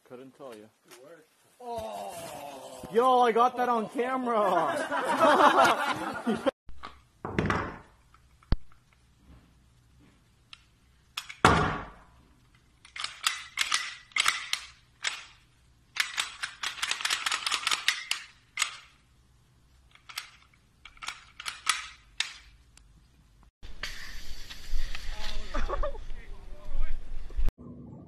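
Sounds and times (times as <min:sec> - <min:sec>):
pistol parts clicking and rattling: 0:10.5 - 0:11.4, 0:12.4 - 0:19.0, 0:19.8 - 0:22.6
pistol snap: 0:12.9 - 0:15.4.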